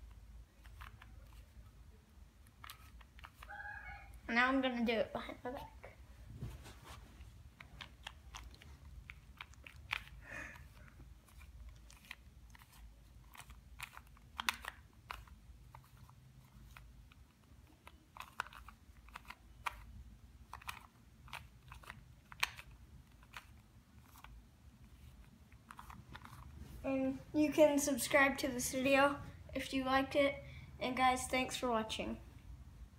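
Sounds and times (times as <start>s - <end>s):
puzzle cube clicking: 0.6s - 1.5s, 2.4s - 3.5s, 7.6s - 24.4s, 25.0s - 26.5s.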